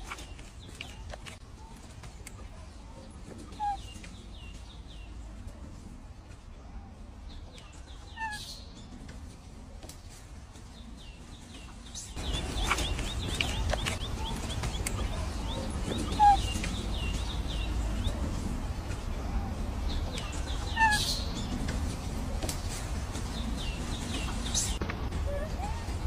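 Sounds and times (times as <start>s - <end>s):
birds chirping: 0.0s - 26.0s
low background rumble: 0.0s - 26.0s.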